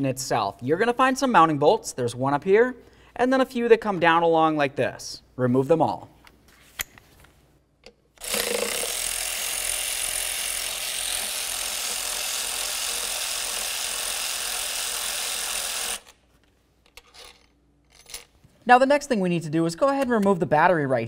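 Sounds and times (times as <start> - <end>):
cordless power tool running: 8.2 - 16.2.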